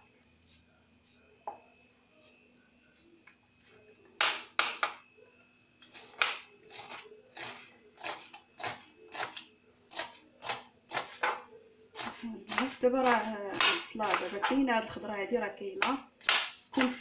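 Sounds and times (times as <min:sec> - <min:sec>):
knife chopping on counter: 0:06.0 - 0:14.6, 0:15.8 - 0:17.0.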